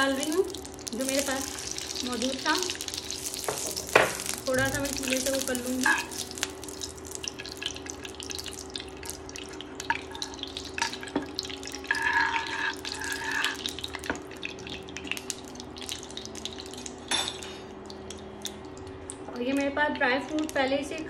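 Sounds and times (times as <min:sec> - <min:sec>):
ghee crackling in a frying pan: 0:00.0 - 0:21.0
steady hum: 0:00.0 - 0:21.0
metal spoon stirring in a pan: 0:11.8 - 0:13.8.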